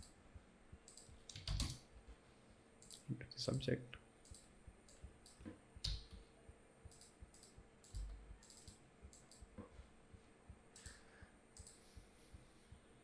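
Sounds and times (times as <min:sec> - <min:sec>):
computer mouse and keyboard clicking: 0:00.9 - 0:01.8, 0:06.9 - 0:09.5, 0:11.6 - 0:11.8.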